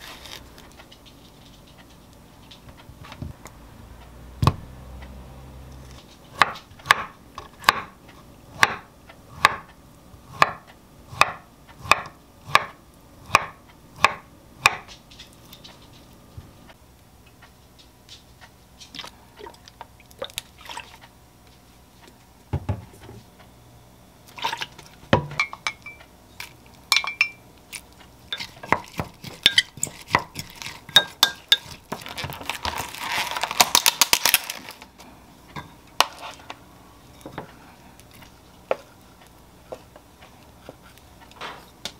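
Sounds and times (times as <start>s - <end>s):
knife chopping on wooden board: 6.3s - 8.0s, 8.6s - 9.7s, 10.4s - 14.9s, 28.4s - 32.0s
spoon clinking against glass mug: 26.9s - 27.4s
plastic food pack crackling: 30.3s - 35.0s.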